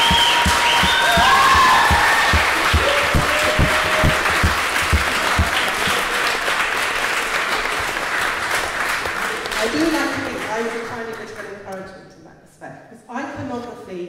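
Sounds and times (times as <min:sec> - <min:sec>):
whoops: 0:00.0 - 0:04.7
rhythmic thumping: 0:00.0 - 0:06.2
audience applauding and cheering: 0:00.0 - 0:10.6.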